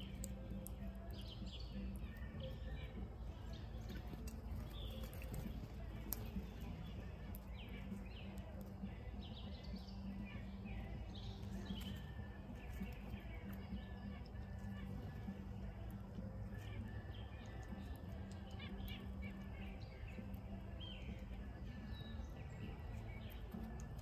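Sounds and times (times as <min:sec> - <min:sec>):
songbirds chirping: 0:00.0 - 0:24.0
steady low hum: 0:00.0 - 0:24.0.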